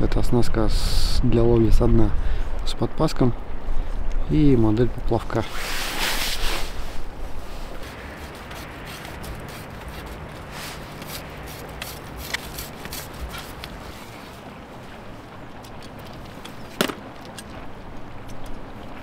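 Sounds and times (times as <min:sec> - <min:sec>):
fishing tackle rustling: 0:05.6 - 0:17.7.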